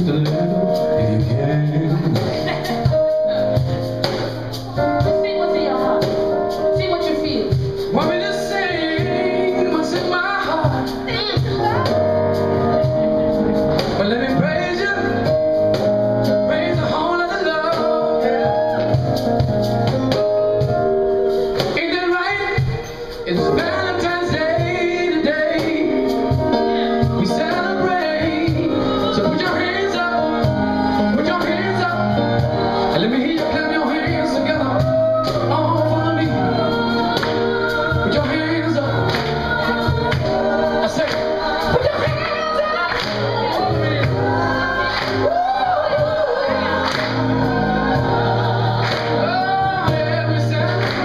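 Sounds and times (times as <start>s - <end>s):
live band with singers: 0.0s - 51.0s.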